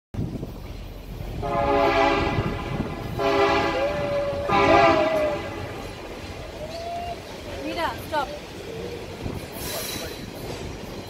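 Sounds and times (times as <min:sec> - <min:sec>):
moving train running noise: 0:00.2 - 0:11.0
locomotive air horn blasts: 0:01.4 - 0:06.2.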